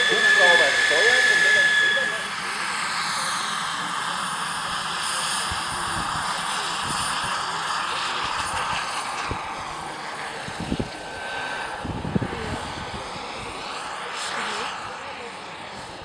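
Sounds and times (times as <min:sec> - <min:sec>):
model helicopter rotor whine: 0:00.0 - 0:16.0.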